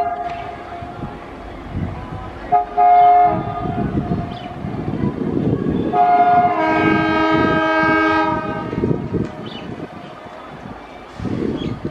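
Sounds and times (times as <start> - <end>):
locomotive horn long blast: 0.0 - 0.6, 2.5 - 4.0, 5.8 - 9.1
train coaches rumbling on track: 0.0 - 11.9.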